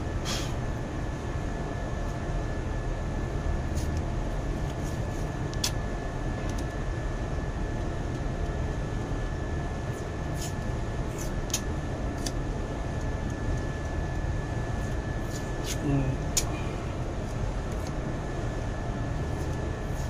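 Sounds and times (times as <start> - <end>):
machinery drone: 0.0 - 20.0
thin steady whine: 0.0 - 20.0.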